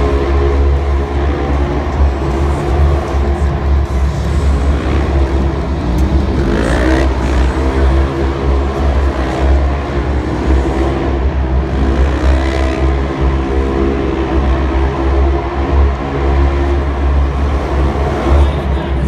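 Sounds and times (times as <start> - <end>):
loud steady low rumble: 0.0 - 19.0
off-road engines revving: 0.0 - 19.0.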